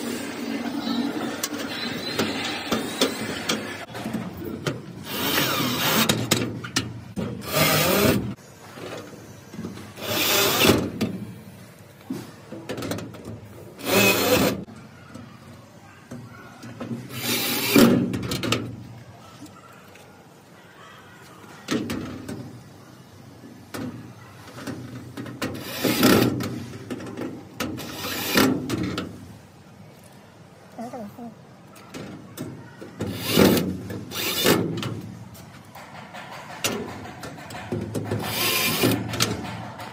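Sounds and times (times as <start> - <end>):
clicks and knocks: 34.7 - 39.9.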